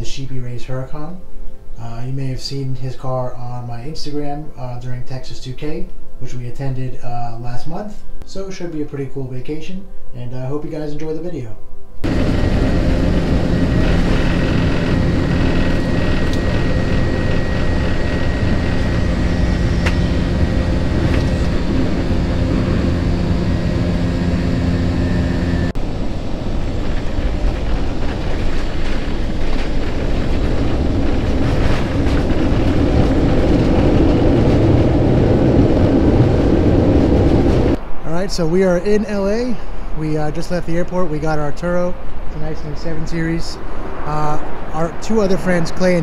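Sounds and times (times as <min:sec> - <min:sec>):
airliner cabin rumble: 0:12.0 - 0:46.0
jet engines with whine: 0:12.0 - 0:46.0.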